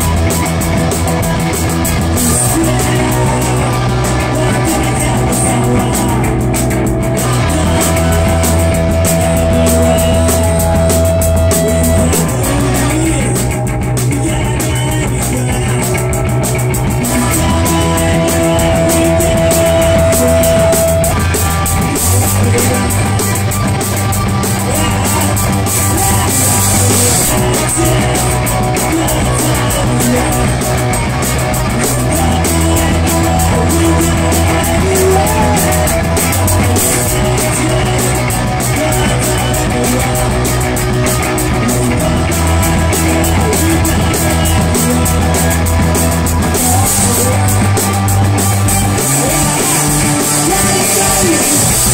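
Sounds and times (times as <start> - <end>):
drum kit: 0.0 - 51.9
electric bass: 0.0 - 51.9
electric guitar: 0.0 - 51.9.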